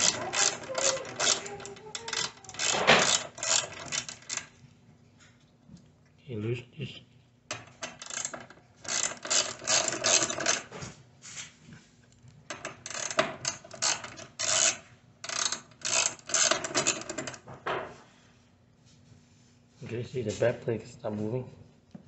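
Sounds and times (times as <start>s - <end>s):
hand ratchet clicking: 0.0s - 4.5s, 7.5s - 10.7s, 12.5s - 17.4s.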